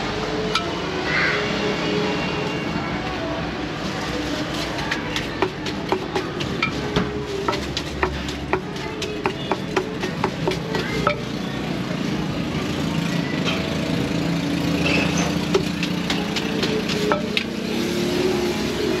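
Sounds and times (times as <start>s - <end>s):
street traffic rumble: 0.0s - 19.0s
spoon scraping and mixing: 4.4s - 11.3s, 14.9s - 17.8s
pestle pounding in mortar: 4.9s - 11.3s, 15.2s - 17.7s.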